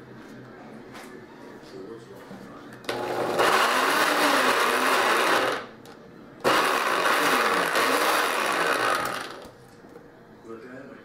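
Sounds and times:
blender motor: 0:02.9 - 0:05.7, 0:06.4 - 0:09.5.

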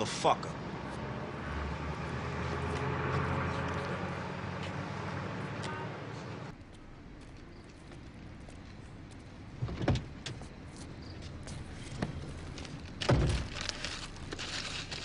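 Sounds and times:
traffic background hush: 0:00.0 - 0:14.7
vehicle passing: 0:00.4 - 0:06.5.

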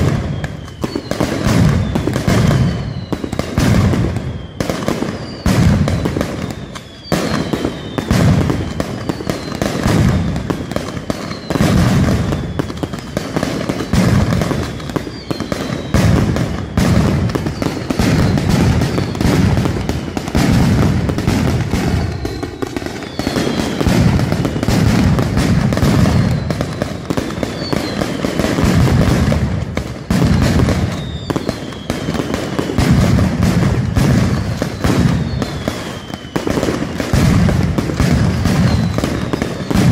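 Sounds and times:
falling whistles: 0:00.0 - 0:03.5, 0:04.1 - 0:09.8, 0:10.4 - 0:16.8, 0:17.4 - 0:24.9, 0:25.9 - 0:28.4, 0:30.8 - 0:32.3, 0:33.9 - 0:37.0, 0:38.5 - 0:39.9
firecrackers crackling: 0:00.0 - 0:39.9.

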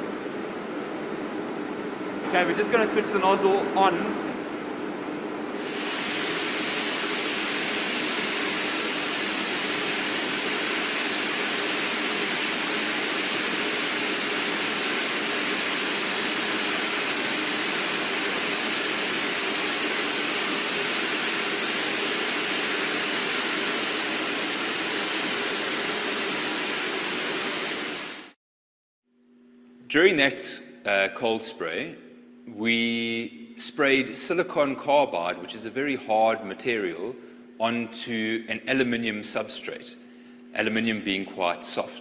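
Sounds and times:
spray gun loud steady hiss: 0:05.5 - 0:28.4.

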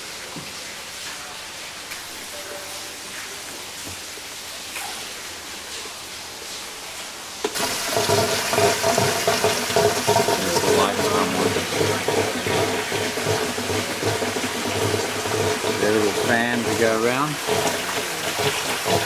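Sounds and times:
water rushing down pipe: 0:00.0 - 0:19.0.

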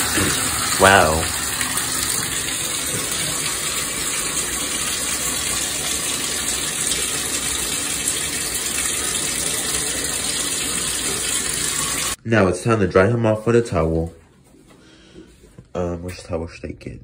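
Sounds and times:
water running into a bathtub: 0:00.0 - 0:12.2.

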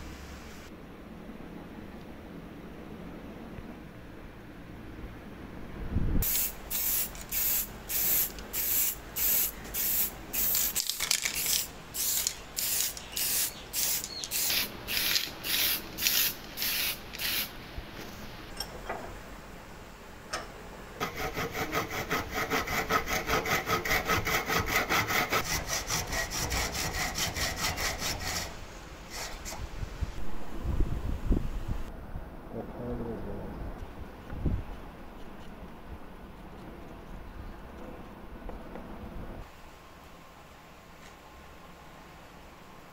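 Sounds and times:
spray paint hissing: 0:06.2 - 0:17.5
hacksaw cutting wood: 0:21.0 - 0:28.5.

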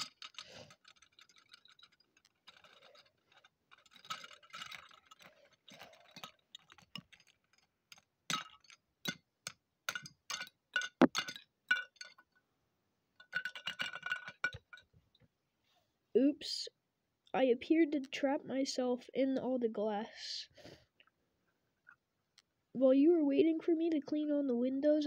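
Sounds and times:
glass shards clinking: 0:00.0 - 0:12.4, 0:13.2 - 0:14.9.

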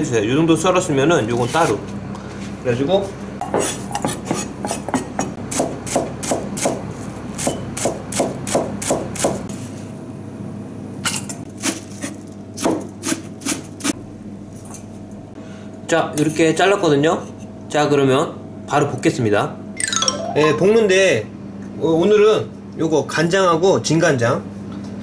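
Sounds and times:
knife chopping on cutting board: 0:03.4 - 0:06.8, 0:07.4 - 0:09.5.

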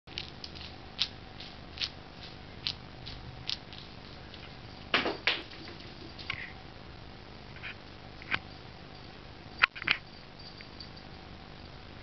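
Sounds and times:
kitten paws tapping on floor: 0:00.1 - 0:06.5.

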